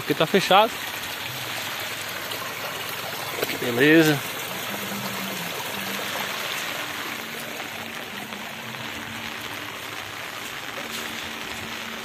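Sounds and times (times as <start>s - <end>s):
water rushing down a ditch: 0.0s - 12.0s.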